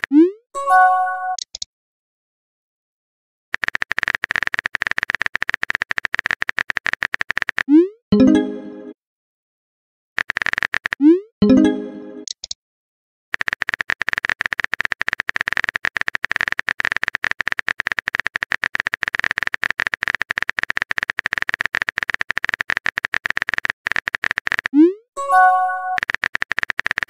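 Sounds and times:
keyboard typing clicks: 0:01.3 - 0:01.7, 0:03.6 - 0:08.4, 0:10.2 - 0:12.6, 0:13.4 - 0:27.0.

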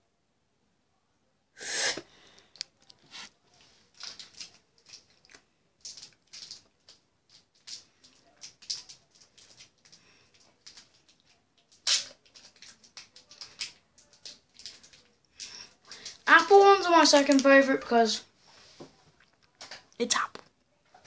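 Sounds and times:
wrapper crinkling: 0:02.5 - 0:17.9
candy wrapper ripping: 0:03.9 - 0:17.6.

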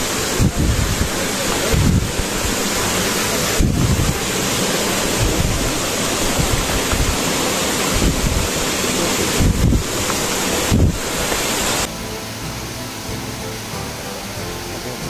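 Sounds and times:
wind buffeting microphone: 0:00.0 - 0:11.9.

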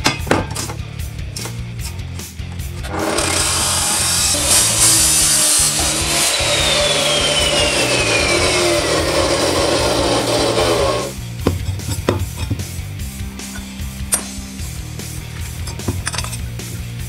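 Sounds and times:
chop saw disc winding down: 0:02.8 - 0:11.2.

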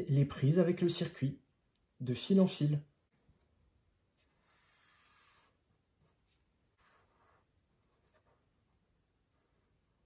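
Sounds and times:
marker scratching on paper: 0:04.2 - 0:08.8.

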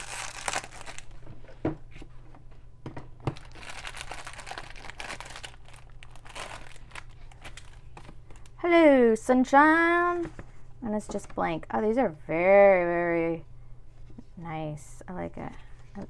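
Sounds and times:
plastic wrapper crinkling: 0:00.0 - 0:01.3, 0:03.3 - 0:08.6.

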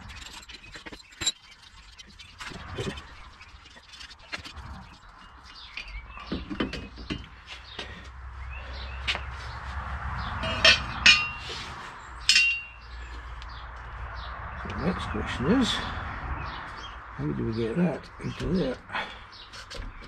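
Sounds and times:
ringing metal clinks: 0:10.4 - 0:11.4, 0:12.3 - 0:12.8.

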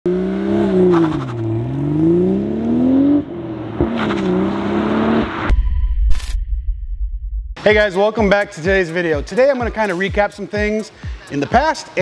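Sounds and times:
car engine accelerating: 0:00.1 - 0:05.5.

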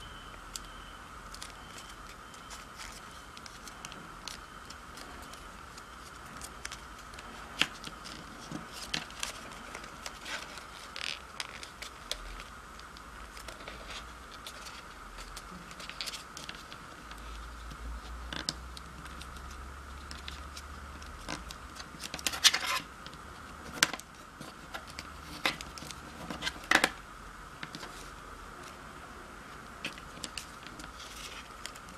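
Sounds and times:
paper being folded and creased: 0:01.3 - 0:22.9, 0:29.8 - 0:31.9.

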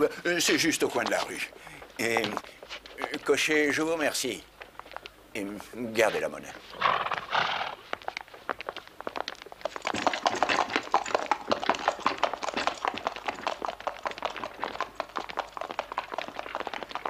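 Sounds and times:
footsteps: 0:00.0 - 0:10.8
horse hooves clip-clopping: 0:00.0 - 0:17.0.

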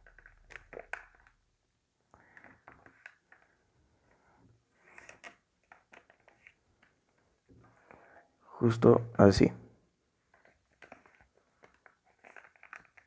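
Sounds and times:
paper rustling and creasing: 0:04.8 - 0:07.9, 0:10.2 - 0:13.0.

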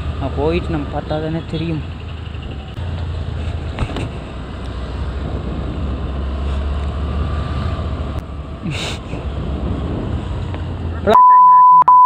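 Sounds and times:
wind rumble on microphone: 0:03.4 - 0:11.1.

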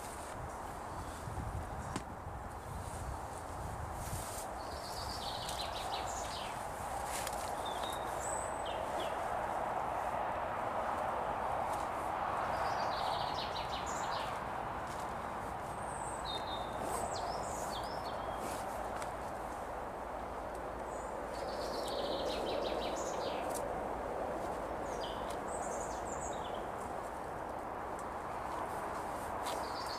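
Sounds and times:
songbirds chirping: 0:00.1 - 0:29.9.

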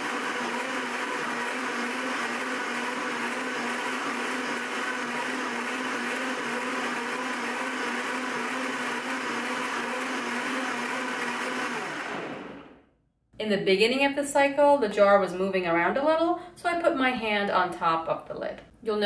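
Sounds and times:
blender motor whirring: 0:00.0 - 0:12.8.

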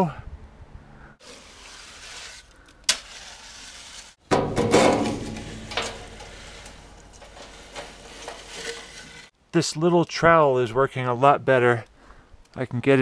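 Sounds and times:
trowel scraping wet concrete: 0:01.2 - 0:04.2, 0:05.3 - 0:09.3
wet concrete rustling: 0:01.2 - 0:09.4.

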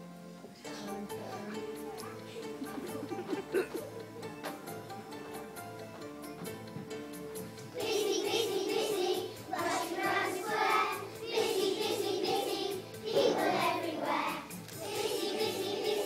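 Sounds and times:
backing music: 0:00.0 - 0:16.0
children singing: 0:07.8 - 0:16.0.

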